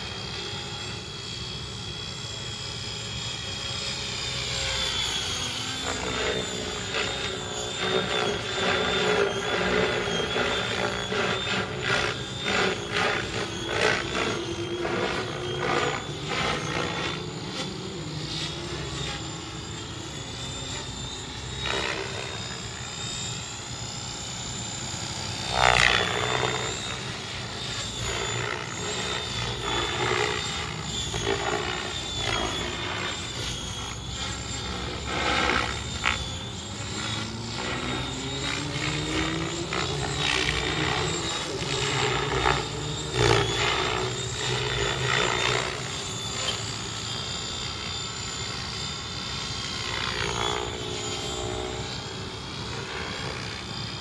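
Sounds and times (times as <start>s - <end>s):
high motor whine: 0.0s - 54.0s
rotor blades swishing: 5.4s - 22.8s.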